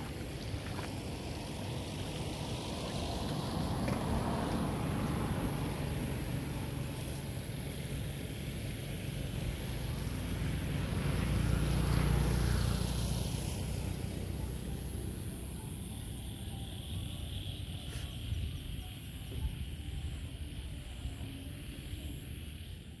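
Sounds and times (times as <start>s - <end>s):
vehicle engine passing by: 0.0s - 16.0s.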